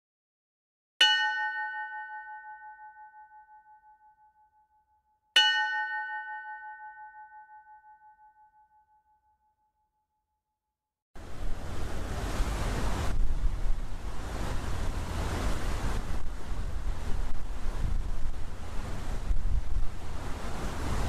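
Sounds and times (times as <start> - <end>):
bell ringing: 1.0 - 9.6.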